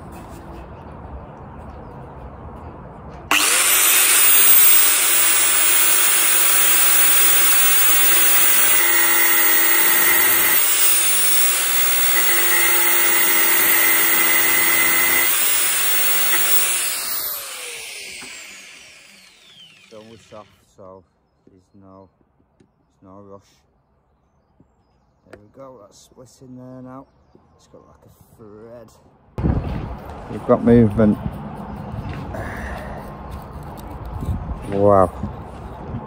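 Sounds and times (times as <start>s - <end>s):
grinder whining: 3.3s - 20.6s.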